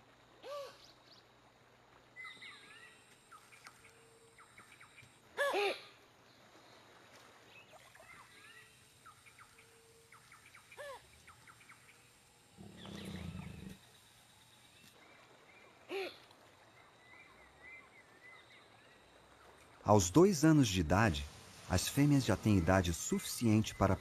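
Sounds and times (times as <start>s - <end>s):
faint bird chirps: 2.2s - 14.0s
jaguar growling: 12.6s - 13.8s.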